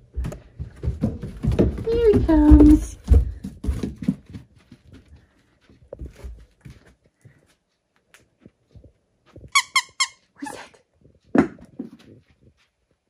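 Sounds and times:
squeaky dog toy squeezed: 9.5 - 10.7.

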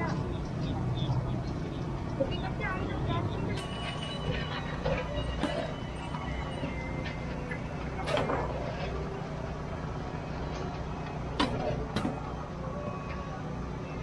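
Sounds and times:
background chatter of people: 0.0 - 14.0
steady low hum: 0.0 - 14.0.

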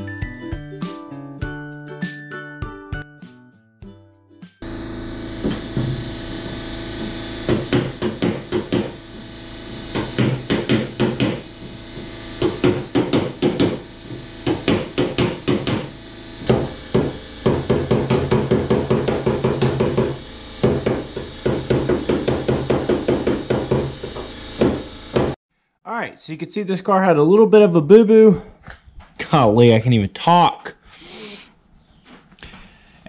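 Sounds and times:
hammer tapping on metal: 14.4 - 15.9.

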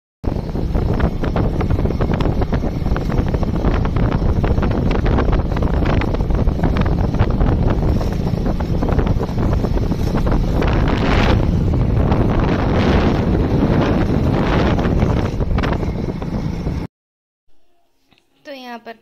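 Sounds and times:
wind buffeting microphone: 0.2 - 16.9.

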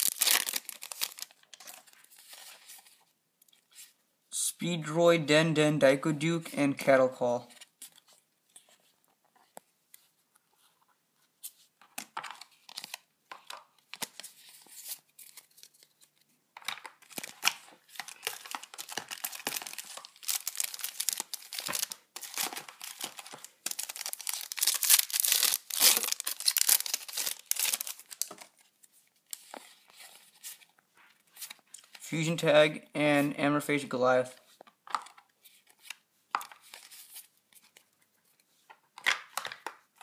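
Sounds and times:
foil wrapper tearing and crinkling: 0.0 - 1.4, 17.1 - 28.3.

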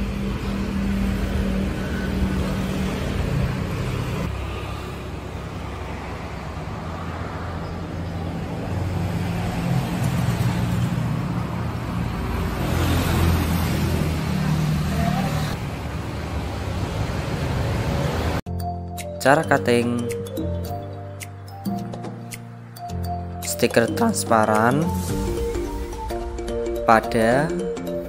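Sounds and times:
vehicle passing close: 0.0 - 18.4, 20.7 - 23.4
traffic engine rumble: 0.0 - 18.5.

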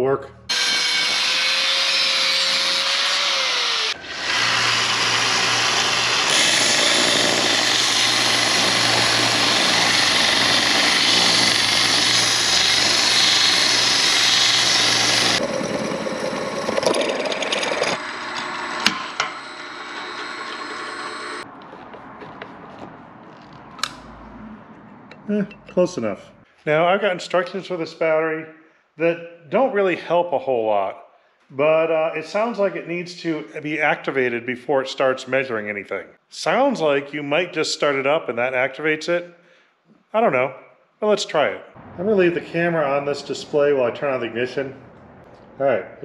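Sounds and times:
belt sander grinding metal: 0.5 - 21.4
motor winding down: 0.5 - 21.4.

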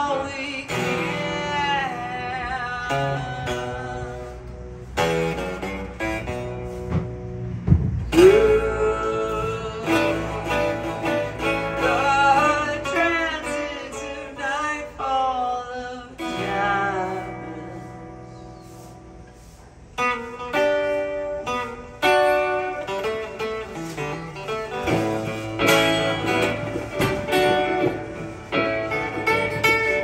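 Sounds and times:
solo acoustic guitar: 0.0 - 30.0
low thump: 6.9 - 8.1
wordless vocal: 11.7 - 18.3.

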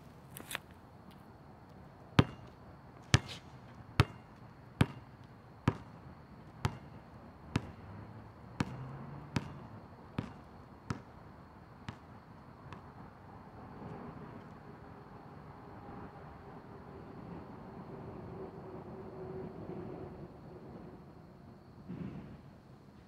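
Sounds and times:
basketball bouncing on asphalt: 2.2 - 13.2.

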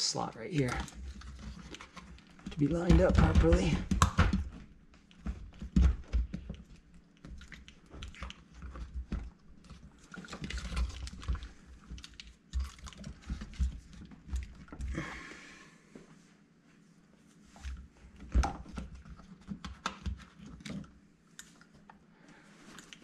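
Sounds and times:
plastic parts clicking and knocking: 0.6 - 14.9.

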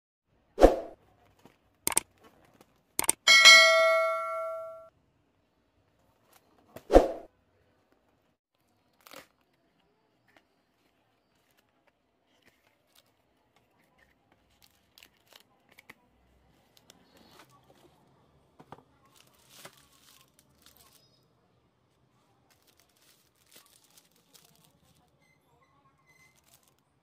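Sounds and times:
bell ding sound effect: 3.3 - 4.9
rustling of cardboard and foil: 18.9 - 21.3, 22.1 - 25.3, 26.1 - 27.0.

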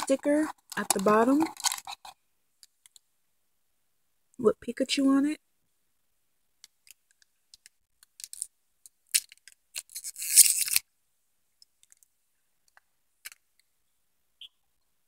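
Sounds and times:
plastic wrapper crinkling: 0.0 - 2.2.

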